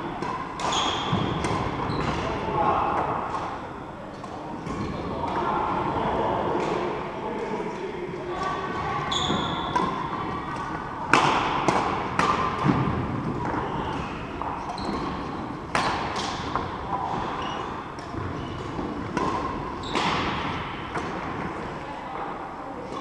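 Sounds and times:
rackets striking shuttlecock: 0.2 - 2.3, 9.4 - 21.5
shoes squeaking on court: 0.6 - 2.3, 9.0 - 10.7, 13.4 - 20.3.

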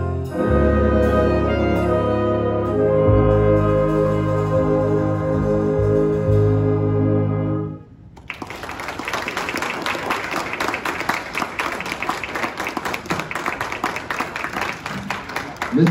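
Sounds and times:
big band brass chord: 0.0 - 7.8
audience applauding: 8.2 - 15.9.

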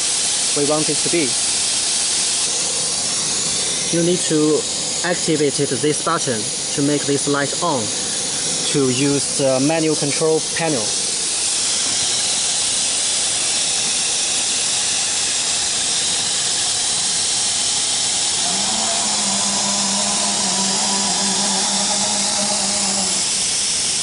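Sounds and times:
cnc router hiss: 0.0 - 24.0
motor hum: 15.7 - 24.0.

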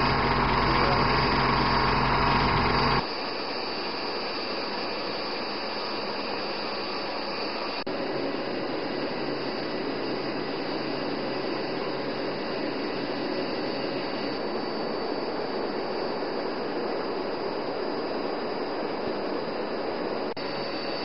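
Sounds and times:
vehicle engine hum: 0.0 - 3.0
aircraft engine drone: 0.0 - 21.0
faint high whine: 0.0 - 21.0.

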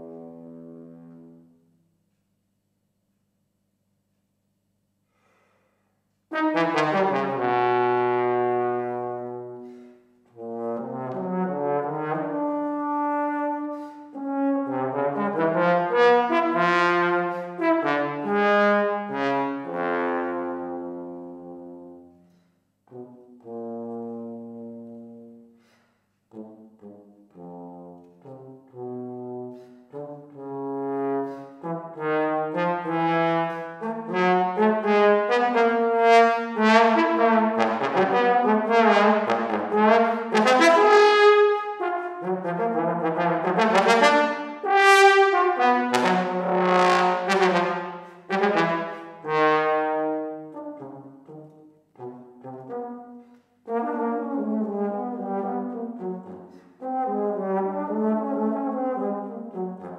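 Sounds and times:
breaths: 5.0 - 6.2, 9.6 - 10.3, 13.7 - 14.2, 22.2 - 22.8, 25.5 - 26.3, 29.5 - 30.0, 47.9 - 48.3, 56.4 - 56.8
solo trombone playing: 6.3 - 22.2, 22.8 - 25.6, 26.3 - 59.9.

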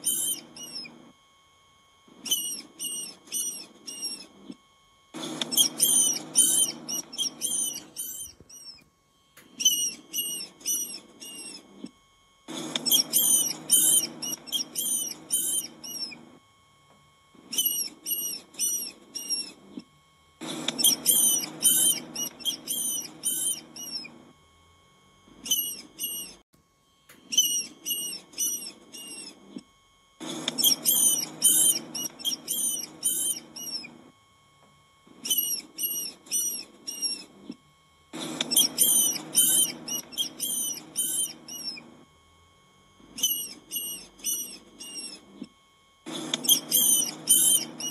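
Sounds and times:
rodent squeaking: 0.0 - 1.0, 2.2 - 4.6, 5.2 - 8.8, 9.5 - 11.9, 12.5 - 16.2, 17.4 - 19.8, 20.4 - 24.2, 25.4 - 26.4, 27.2 - 29.6, 30.2 - 34.0, 35.2 - 37.6, 38.2 - 41.9, 43.2 - 45.5, 46.1 - 47.9.

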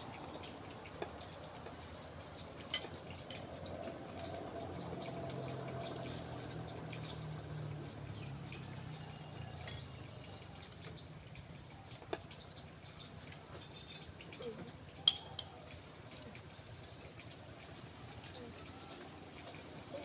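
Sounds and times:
spoons clinking on ceramic plates: 2.7 - 3.5, 9.6 - 10.0, 13.5 - 14.4, 15.0 - 15.7.

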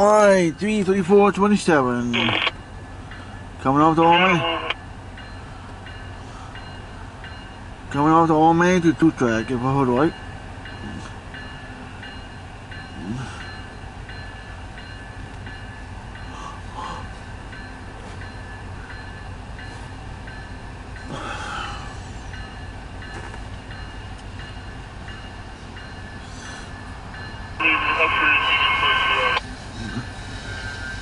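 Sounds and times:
train rumble: 0.0 - 31.0
crossing bell dinging: 1.3 - 29.5.

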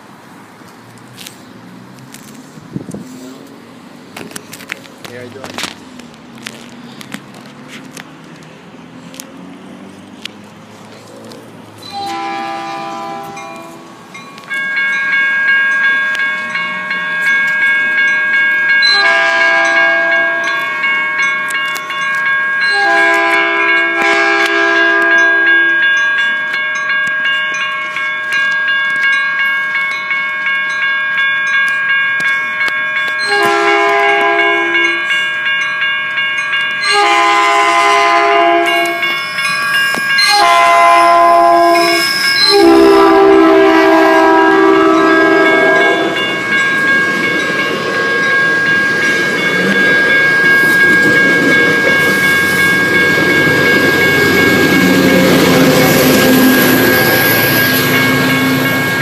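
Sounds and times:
railroad crossing bells ringing: 0.0 - 59.0
train rumbling past: 0.0 - 59.0
train horn blasts: 11.8 - 13.9, 18.9 - 20.6, 22.7 - 25.8, 33.3 - 35.1, 36.8 - 39.1, 40.2 - 46.4.

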